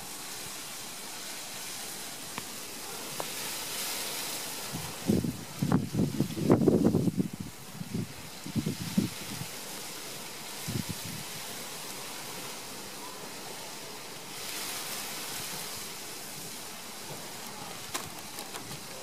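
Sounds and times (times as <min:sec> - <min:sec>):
wind hiss: 0:00.0 - 0:19.0
wind buffet on microphone: 0:04.6 - 0:09.6, 0:10.6 - 0:11.5.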